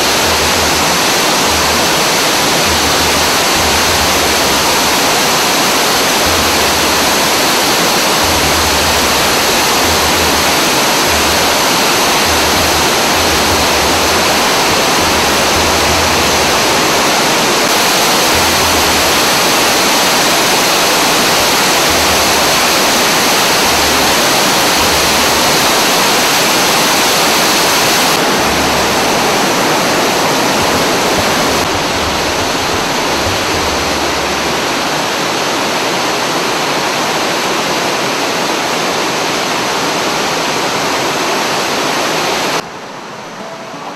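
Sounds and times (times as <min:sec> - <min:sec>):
waterfall rushing: 0:00.0 - 0:43.9.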